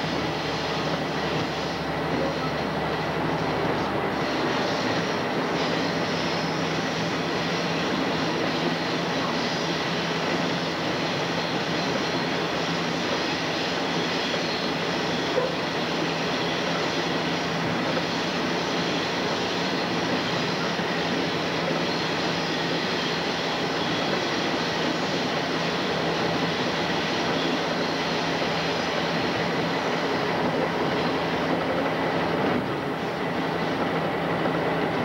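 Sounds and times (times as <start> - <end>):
locomotive engine drone: 0.0 - 35.0
wheel and rail noise: 0.0 - 35.0.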